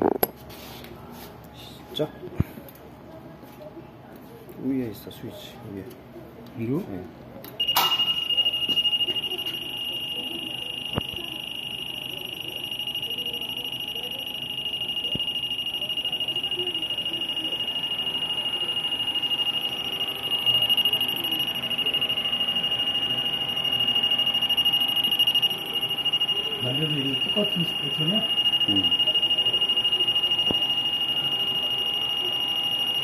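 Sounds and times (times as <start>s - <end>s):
machine high-pitched whine: 7.6s - 33.0s.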